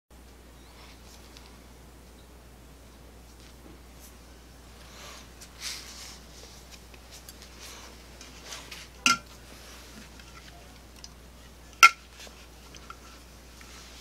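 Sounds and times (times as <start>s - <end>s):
faint handling rustles: 3.2s - 14.0s.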